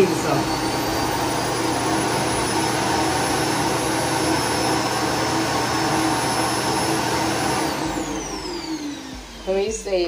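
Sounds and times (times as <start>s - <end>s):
vacuum suction motor whining: 0.0s - 10.0s.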